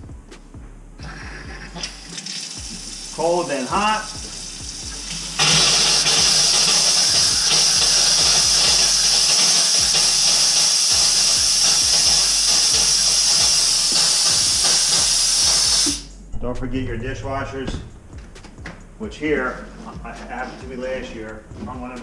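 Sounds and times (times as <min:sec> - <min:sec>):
air hissing from faucet spout: 0:01.2 - 0:16.1
water running from faucet: 0:01.7 - 0:16.1.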